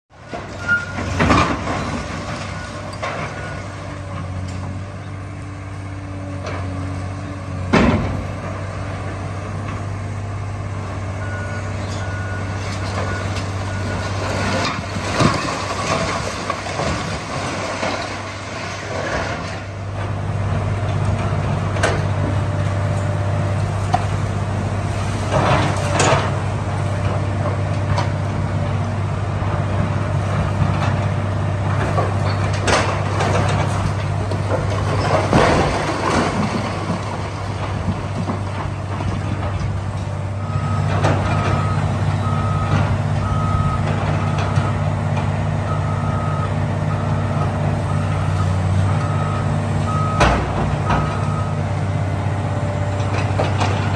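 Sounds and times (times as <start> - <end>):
diesel engine running: 0.1 - 53.9
masonry crashing and debris falling: 0.6 - 3.6, 14.0 - 19.5, 32.0 - 39.6.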